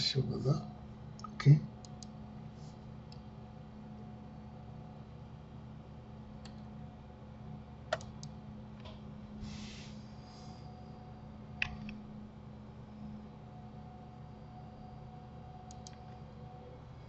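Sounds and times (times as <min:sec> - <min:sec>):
low steady hum: 0:00.0 - 0:17.0
mouse and keyboard clicks: 0:07.9 - 0:08.3, 0:15.7 - 0:16.1.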